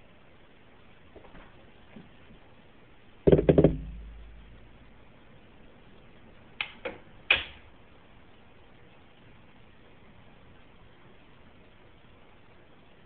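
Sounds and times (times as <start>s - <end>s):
low thud: 3.3s - 4.6s
sharp knocks: 3.3s - 4.6s.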